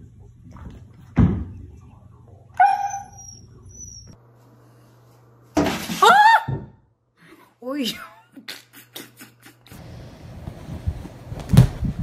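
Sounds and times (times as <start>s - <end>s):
husky whining: 2.6s - 4.2s.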